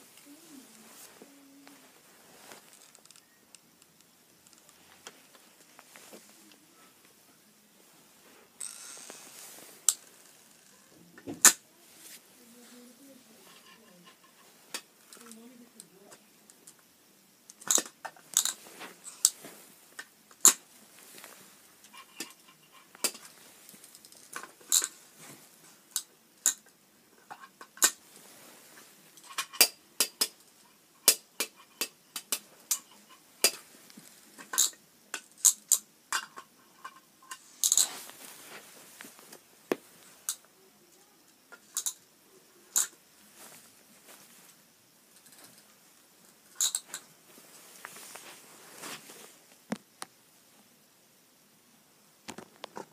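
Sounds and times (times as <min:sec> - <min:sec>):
plastic rattle: 0:02.6 - 0:03.3, 0:21.9 - 0:25.0, 0:46.6 - 0:47.0.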